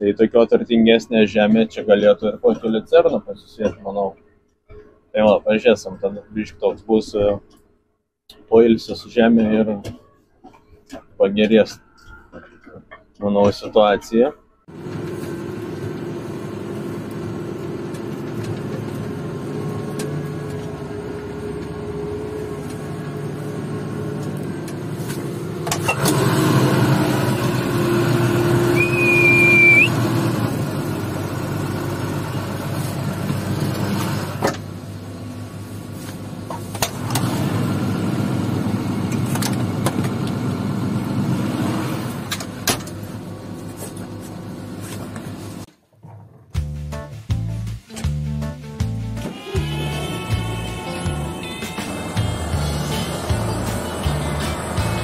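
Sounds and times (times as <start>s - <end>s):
tractor engine running: 14.7s - 45.6s, 48.8s - 55.0s
high-pitched tone: 49.3s - 55.0s.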